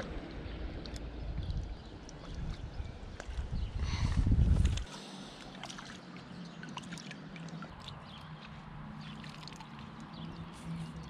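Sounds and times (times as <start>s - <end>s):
light splashes: 4.7s - 11.0s.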